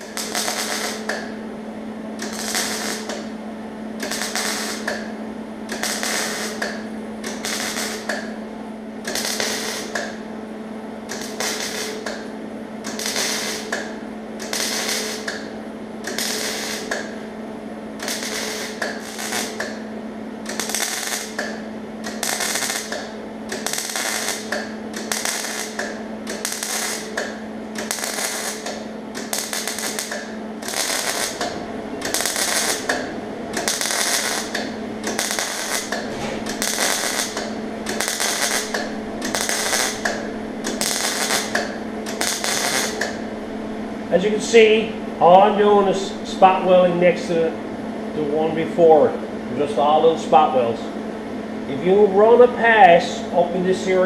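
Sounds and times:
welder bursts: 0.0s - 1.3s, 2.2s - 3.3s, 4.0s - 8.4s, 9.0s - 10.3s, 11.0s - 17.2s, 18.0s - 47.4s
steady hum: 0.0s - 54.0s.

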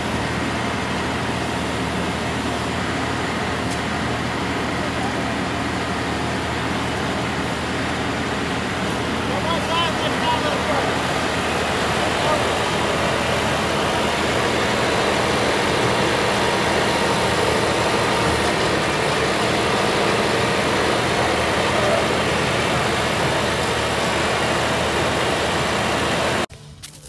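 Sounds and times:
tractor diesel engine running: 0.0s - 27.0s.

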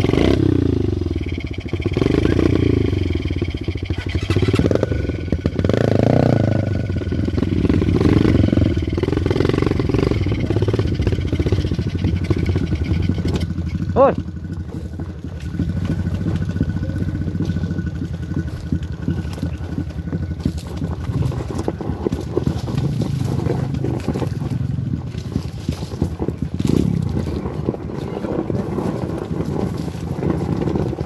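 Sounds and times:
motorcycle engine running: 0.0s - 31.0s
knocks and rattles over stones: 9.2s - 31.0s.

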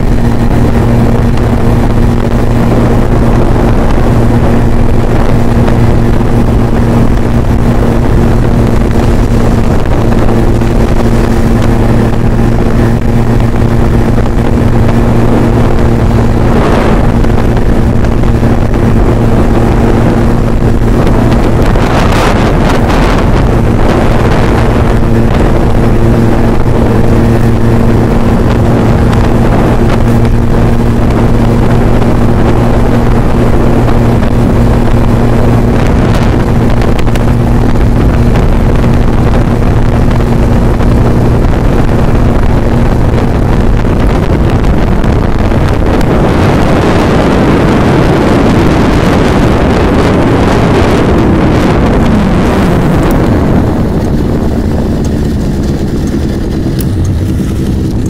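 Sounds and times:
scooter engine cruising: 0.0s - 58.0s
wind rushing over microphone: 0.0s - 58.0s.

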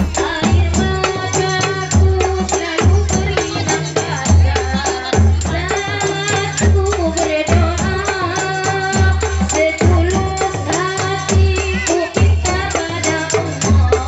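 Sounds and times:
hand-struck frame drums: 0.0s - 3.0s
woman singing into a microphone: 0.0s - 14.0s.

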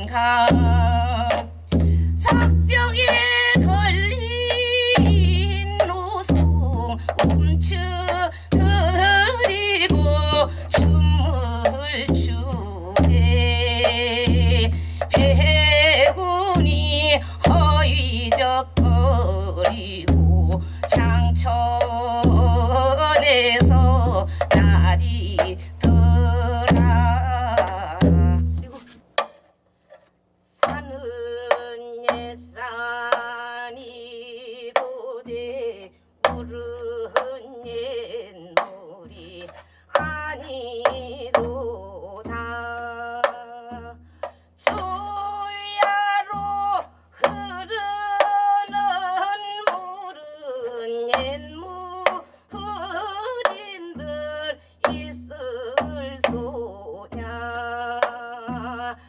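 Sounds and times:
low drum beats: 0.0s - 28.7s
woman singing folk song: 0.0s - 29.0s, 30.4s - 59.0s
drum stick strokes: 26.5s - 30.9s.

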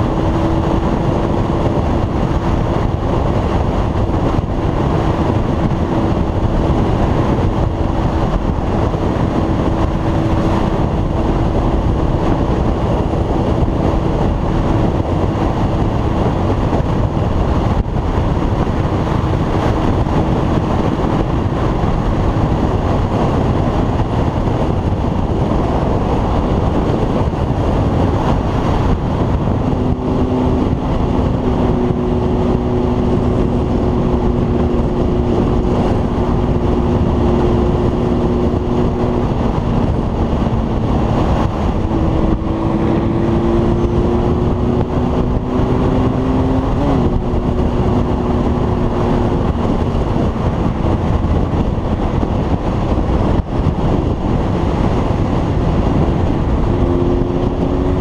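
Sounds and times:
motorcycle engine hum: 0.0s - 58.0s
wind rush over microphone: 0.0s - 58.0s.

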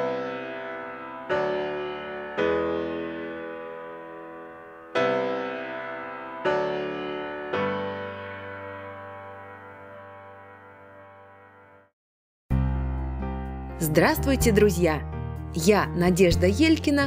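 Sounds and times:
slow piano chords: 0.0s - 11.9s, 12.5s - 17.0s.

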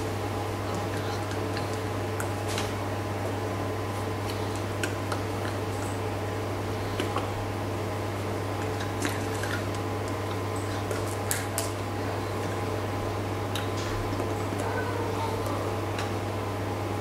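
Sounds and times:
steady low hum: 0.0s - 17.0s
hands and lips clicking: 0.6s - 2.8s, 4.2s - 6.1s, 6.9s - 7.4s, 8.5s - 12.7s, 13.5s - 14.7s.

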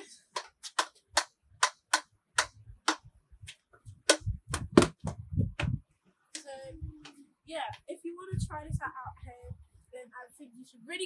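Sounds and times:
hockey stick tapping ball: 0.4s - 3.0s
low thumps: 3.9s - 5.8s.

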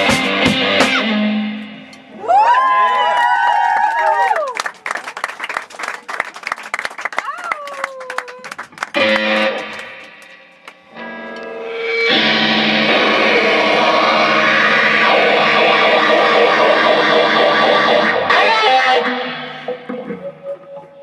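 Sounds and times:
distorted electric guitar: 0.0s - 2.3s, 8.8s - 21.0s
live rock band: 0.0s - 2.3s, 8.6s - 20.7s
drums: 0.0s - 2.9s, 8.5s - 20.6s.

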